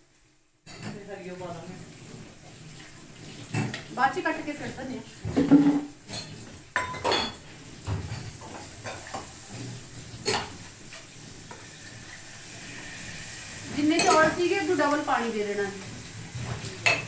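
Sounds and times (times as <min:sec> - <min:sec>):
faint frying sizzle: 0:00.0 - 0:17.0
steel utensils clanking and scraping: 0:12.0 - 0:15.0.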